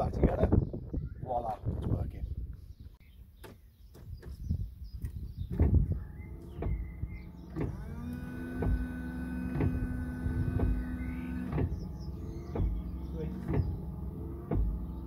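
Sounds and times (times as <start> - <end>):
washer pump whine: 5.7 - 15.0
regular knocking: 12.5 - 13.8.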